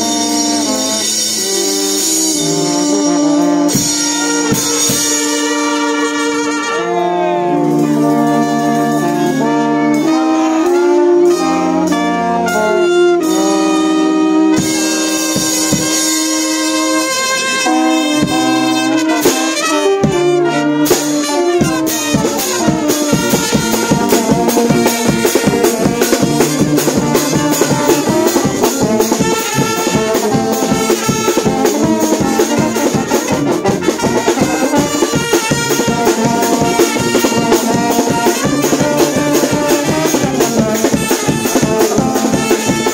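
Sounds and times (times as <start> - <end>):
brass band playing: 0.0 - 42.9
quick drumbeat: 21.6 - 42.9.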